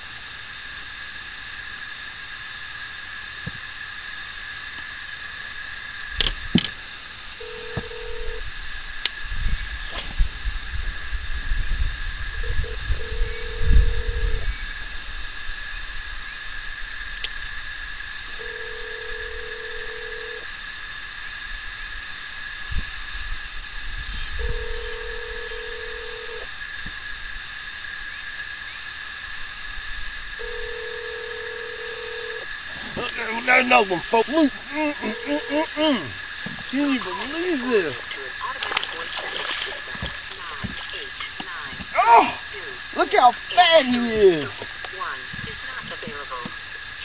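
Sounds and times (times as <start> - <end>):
telephone ringback tone: 7.4 - 8.4, 12.4 - 14.4, 18.4 - 20.4, 24.4 - 26.4, 30.4 - 32.5, 35.0 - 35.7.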